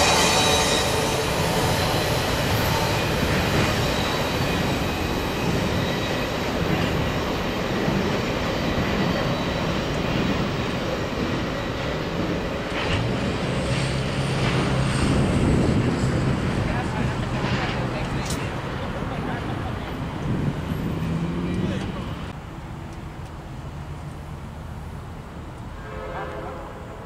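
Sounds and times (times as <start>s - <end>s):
wheel squeal: 0.0s - 10.7s
freight train rolling on rails: 0.0s - 27.0s
road vehicle engine hum: 12.9s - 25.8s.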